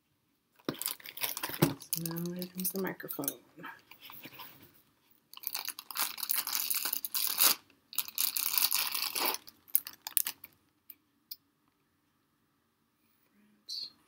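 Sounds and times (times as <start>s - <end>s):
plastic bag crinkling: 0.6s - 2.9s, 5.3s - 10.6s.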